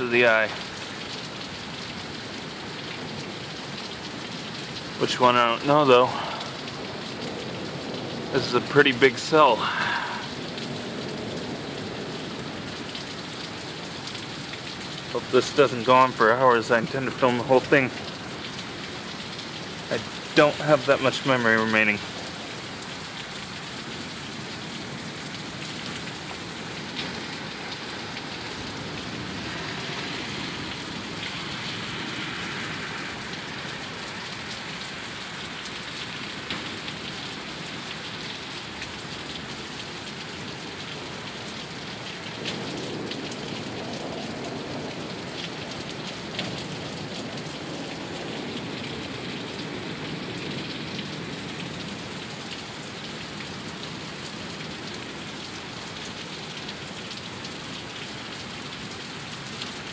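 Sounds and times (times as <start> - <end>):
heavy rain falling: 0.0 - 59.9
sharp raindrop taps: 33.3 - 59.8.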